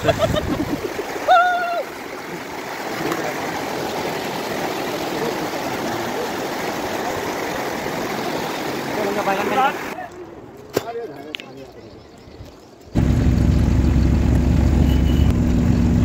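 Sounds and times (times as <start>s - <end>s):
floodwater rushing: 0.0s - 10.5s.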